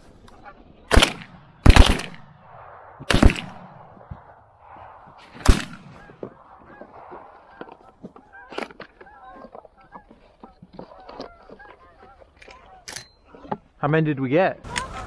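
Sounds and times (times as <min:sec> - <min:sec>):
shotgun blasts: 0:00.9 - 0:06.1
geese honking: 0:05.9 - 0:13.5, 0:14.6 - 0:15.0.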